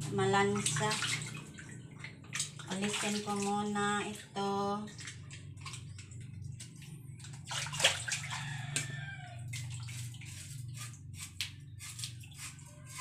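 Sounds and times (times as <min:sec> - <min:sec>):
water splashing in a basin: 0:00.0 - 0:13.0
knife scraping fish: 0:09.9 - 0:13.0.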